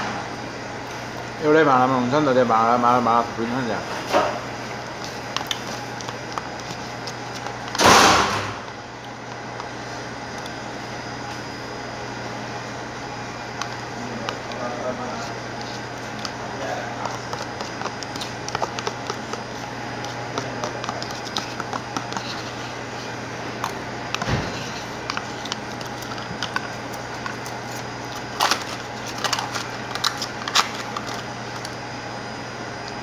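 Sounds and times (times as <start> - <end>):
low room hum: 0.0 - 33.0
spoon scraping plastic tub: 4.9 - 7.8, 13.6 - 31.8.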